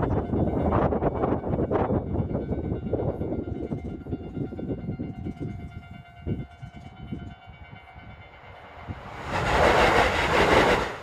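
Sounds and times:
train passing: 0:00.0 - 0:11.0
loud rush of noise: 0:08.7 - 0:11.0.

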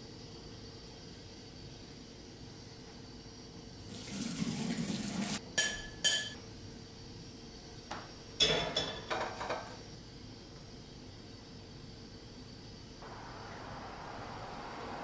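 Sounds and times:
frying pan clanking: 0:05.6 - 0:06.4.

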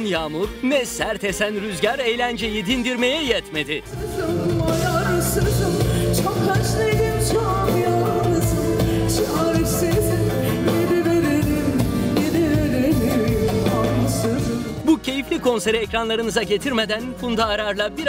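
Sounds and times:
band with bass and drums: 0:00.0 - 0:18.0
woman singing into microphone: 0:03.9 - 0:14.8.

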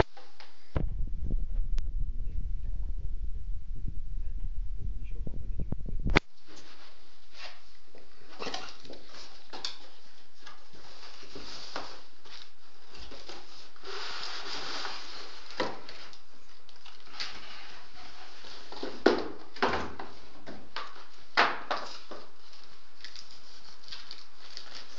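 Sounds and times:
cardboard rustling and scraping: 0:06.4 - 0:20.2.

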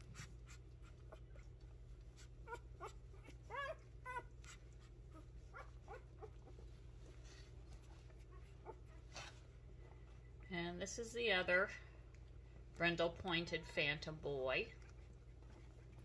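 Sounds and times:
puppies squeaking and whimpering: 0:00.0 - 0:09.4
low steady hum: 0:00.0 - 0:16.0.

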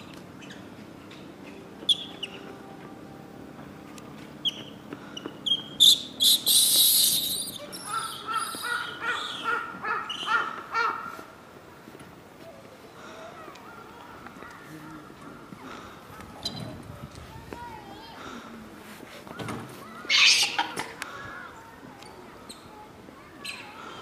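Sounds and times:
baby monkey screaming: 0:06.2 - 0:11.0, 0:20.1 - 0:20.8.

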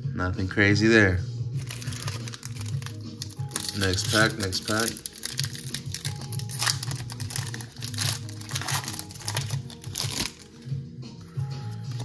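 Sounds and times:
background music: 0:00.0 - 0:12.0
foil wrapper crinkling and tearing: 0:01.6 - 0:10.6.

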